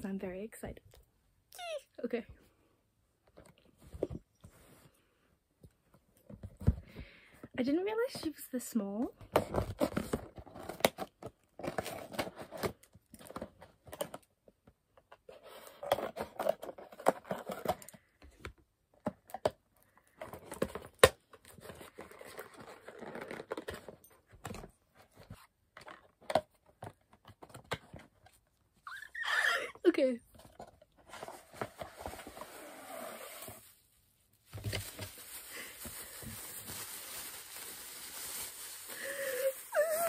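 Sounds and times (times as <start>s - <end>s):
cardboard crinkling and scraping: 9.3s - 14.2s, 15.2s - 17.9s, 20.2s - 28.4s, 30.0s - 40.0s.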